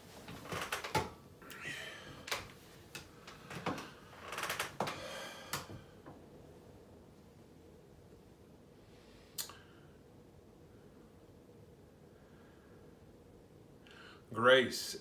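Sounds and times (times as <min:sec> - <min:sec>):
clothing rustle: 0:00.0 - 0:01.0
chair creaking: 0:00.1 - 0:05.8.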